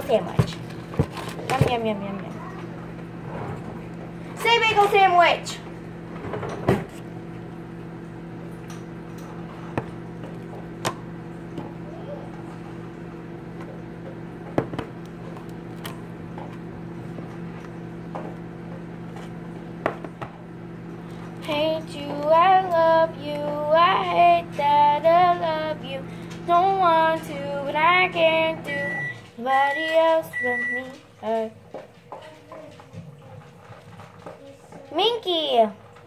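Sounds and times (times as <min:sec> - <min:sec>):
microwave oven humming: 0:00.0 - 0:36.0
girl singing: 0:21.4 - 0:31.6
microwave high beeps: 0:28.4 - 0:31.0.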